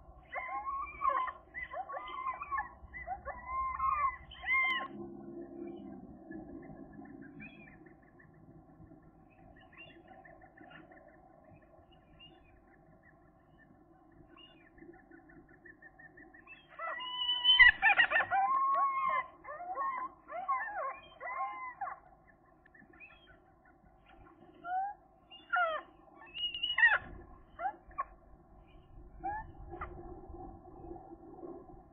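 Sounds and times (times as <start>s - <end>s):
gull calling: 0.0s - 5.0s, 16.5s - 22.1s, 24.7s - 28.2s.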